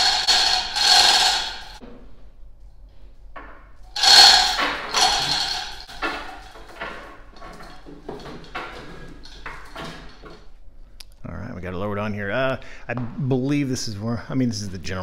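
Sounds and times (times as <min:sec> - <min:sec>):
metal chain clattering: 0:00.0 - 0:01.8, 0:04.0 - 0:10.5
light knocks and rattles: 0:02.9 - 0:10.6.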